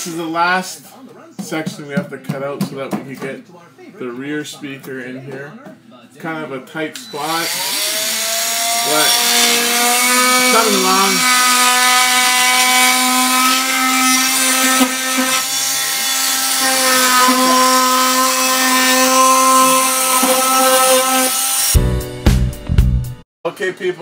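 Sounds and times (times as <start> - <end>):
multi-tool cutting drywall: 7.0 - 21.8.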